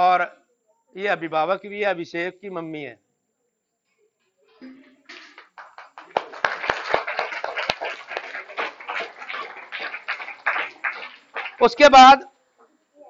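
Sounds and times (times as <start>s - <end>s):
crowd applause: 5.1s - 12.2s.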